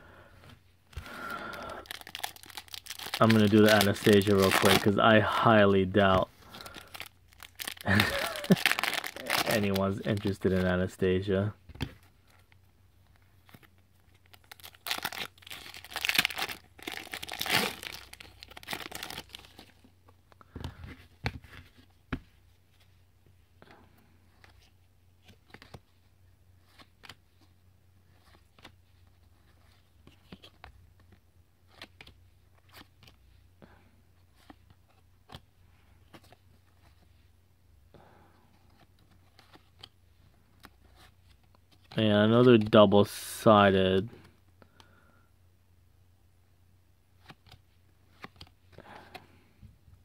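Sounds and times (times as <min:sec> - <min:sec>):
card pack wrapper tearing and crinkling: 0:01.6 - 0:05.2, 0:06.0 - 0:10.7, 0:13.4 - 0:19.9.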